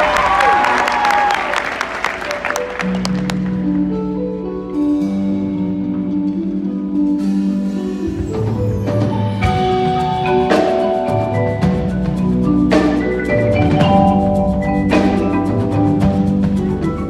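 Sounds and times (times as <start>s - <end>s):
ringing mallet chords: 3.8s - 17.0s.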